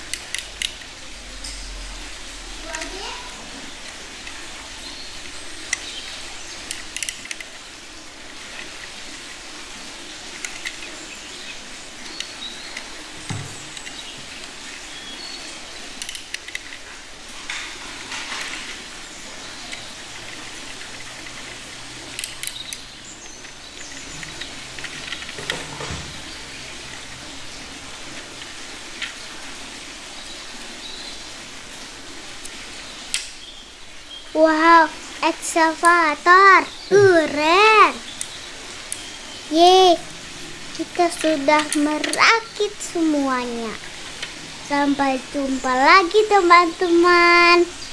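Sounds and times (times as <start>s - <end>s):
plastic toy parts clicking: 0.0s - 0.9s, 6.6s - 7.6s, 10.4s - 10.9s, 16.0s - 16.8s, 19.7s - 22.8s, 40.8s - 42.7s
steady background hiss: 0.0s - 47.9s.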